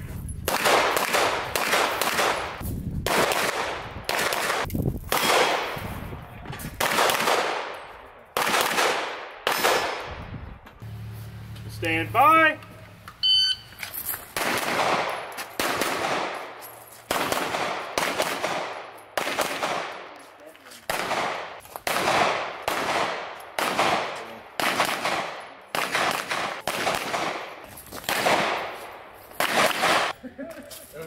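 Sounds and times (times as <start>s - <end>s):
pistol shots echoing: 0.5s - 5.8s, 6.8s - 10.2s, 14.3s - 20.2s, 20.9s - 30.1s
shot timer beep: 13.2s - 13.8s.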